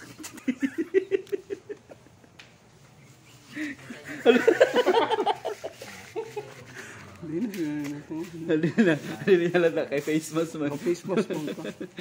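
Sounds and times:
men laughing: 0.0s - 2.4s, 3.5s - 6.9s, 8.5s - 9.6s, 10.9s - 12.0s.

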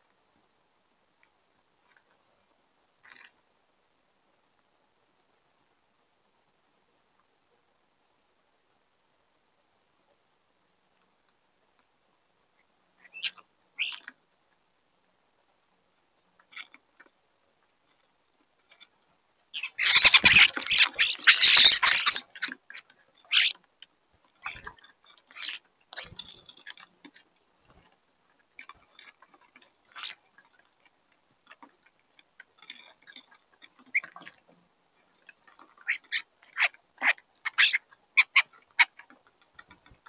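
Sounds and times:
starlings harsh calls: 19.6s - 23.6s, 25.3s - 26.5s, 35.9s - 38.9s
starlings squawking: 19.6s - 23.6s, 25.3s - 26.4s, 35.9s - 38.9s
wing flapping: 19.8s - 22.6s.

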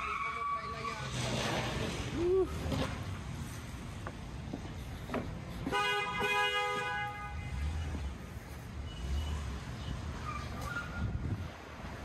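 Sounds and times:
street traffic rumble: 0.0s - 12.0s
two-tone car horn blast: 5.7s - 7.8s.

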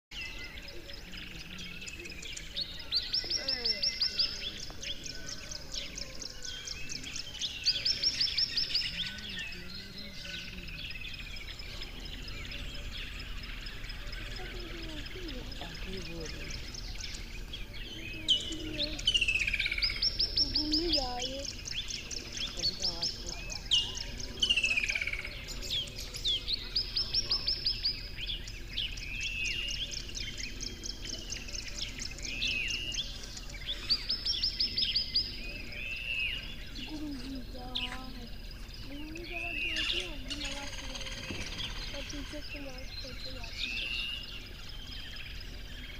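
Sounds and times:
birds singing and chirping: 0.1s - 45.9s
outdoor background: 0.1s - 45.9s.

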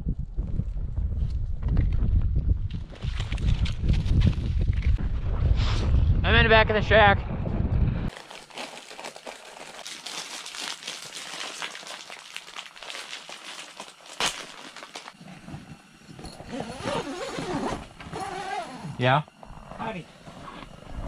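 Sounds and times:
crinkly rustling: 8.1s - 15.2s.

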